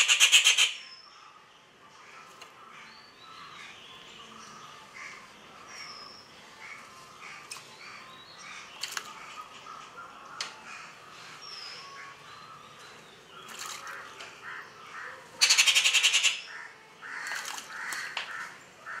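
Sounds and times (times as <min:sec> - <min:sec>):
birds calling faintly: 0:00.0 - 0:19.0
bird splashing in water: 0:13.5 - 0:14.0.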